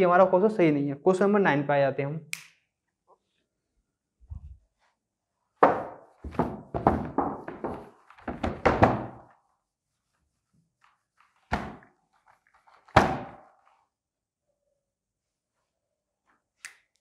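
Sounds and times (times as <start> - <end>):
faint wiping of whiteboard: 4.4 - 5.2, 9.2 - 14.0.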